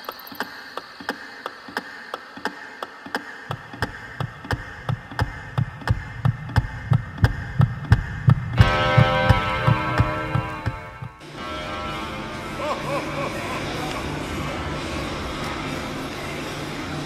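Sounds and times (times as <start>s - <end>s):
clock-like ticking: 0.0s - 11.2s
low thudding beat: 3.5s - 11.4s.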